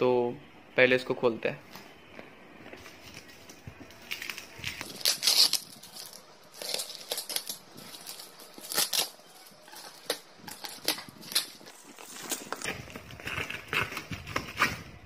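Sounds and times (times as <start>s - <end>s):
plastic wrapping crinkling: 2.8s - 15.0s
packing tape tearing: 4.0s - 15.0s.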